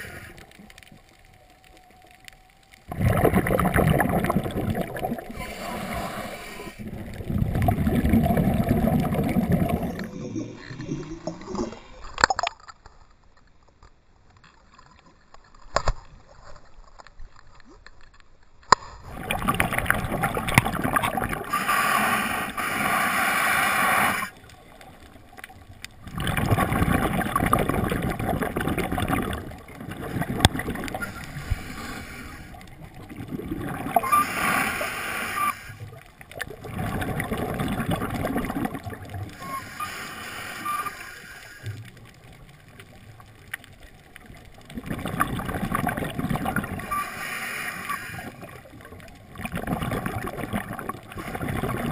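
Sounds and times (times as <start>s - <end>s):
diver breathing through regulator: 0.0s - 0.5s, 5.3s - 7.1s, 21.4s - 24.4s, 30.1s - 32.7s, 34.0s - 35.9s, 39.3s - 41.8s, 46.8s - 48.5s
exhaled bubbles gurgling: 0.0s - 12.5s, 19.0s - 51.9s.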